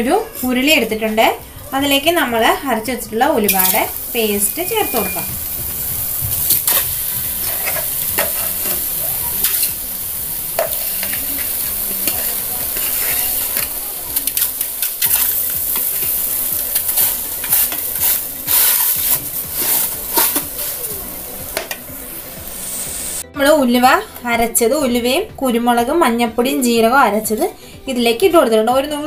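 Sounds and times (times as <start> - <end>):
steady hiss: 3.5 - 23.2.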